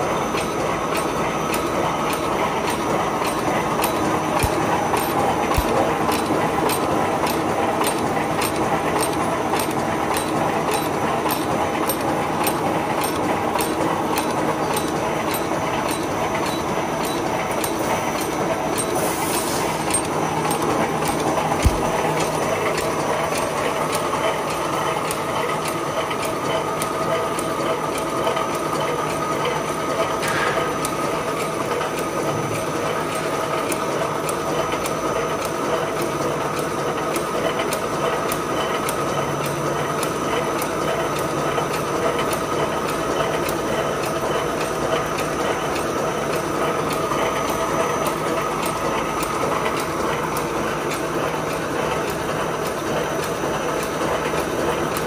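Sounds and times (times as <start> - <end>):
constant machine hum: 0.0 - 55.0
welding machine clatter: 0.0 - 55.0
regular clicking: 0.3 - 29.2.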